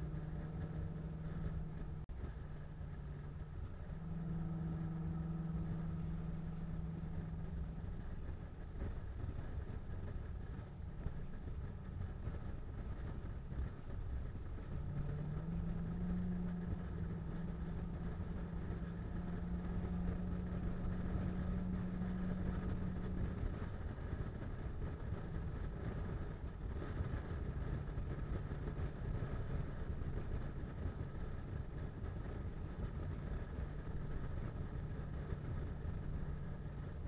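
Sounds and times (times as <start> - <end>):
car engine and road noise: 0.0 - 37.0
steady low hum: 0.0 - 37.0.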